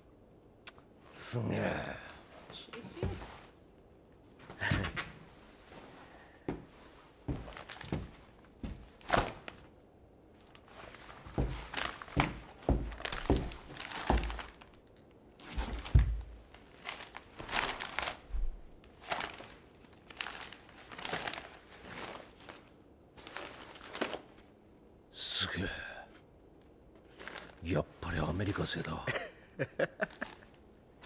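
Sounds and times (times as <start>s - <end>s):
magazine pages turning: 15.4s - 24.4s, 27.1s - 27.6s.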